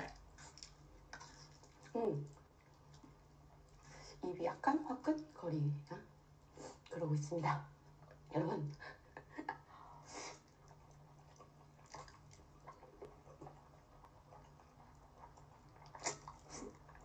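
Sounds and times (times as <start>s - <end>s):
noodles being slurped and chewed: 0.0s - 4.2s, 10.1s - 17.0s
low steady hum: 0.0s - 17.0s
wet mouth smacks: 15.8s - 16.7s.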